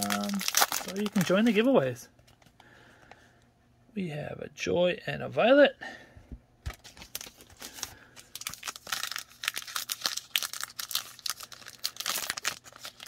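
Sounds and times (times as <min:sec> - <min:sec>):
wrapper crinkling and tearing: 0:00.0 - 0:01.9, 0:06.7 - 0:13.0.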